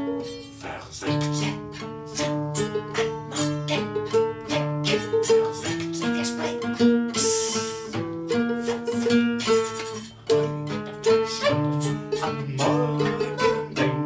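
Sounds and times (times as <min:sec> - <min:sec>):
strummed guitar and ukulele: 0:00.0 - 0:14.0
bowed violin: 0:01.1 - 0:14.0.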